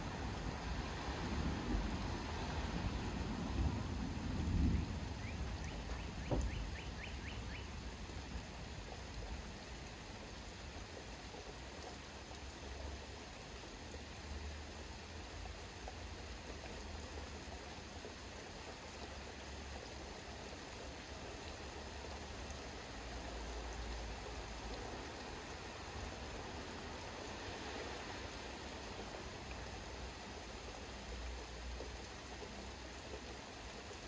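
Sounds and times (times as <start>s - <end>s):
rain hiss: 0.0s - 34.0s
bird chirping: 5.2s - 7.8s
low thump: 6.3s - 6.7s.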